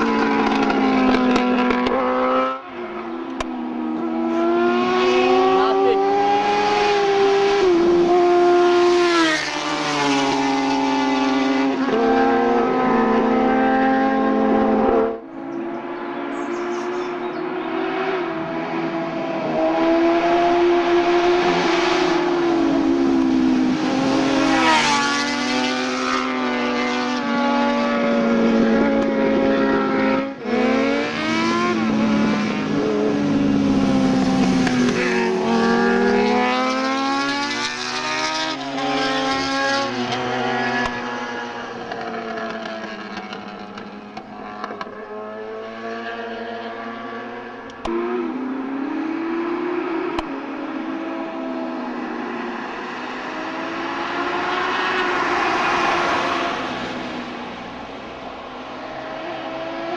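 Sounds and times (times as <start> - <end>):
motorcycles revving past: 3.4 - 57.8.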